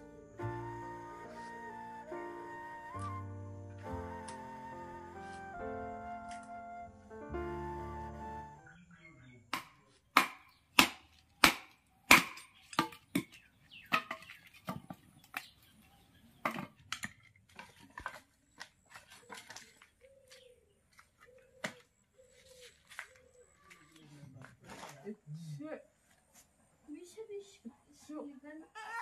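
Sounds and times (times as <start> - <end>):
machete chopping firewood: 9.5 - 14.8.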